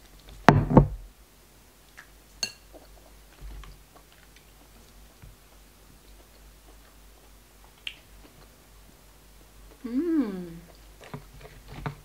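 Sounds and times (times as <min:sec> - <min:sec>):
soft chewing clicks: 0:02.7 - 0:08.6.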